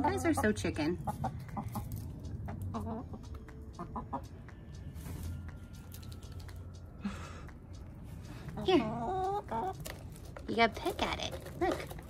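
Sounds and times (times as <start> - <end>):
hens clucking: 0.0 - 5.1, 8.3 - 10.7
hens pecking taps: 8.6 - 12.0.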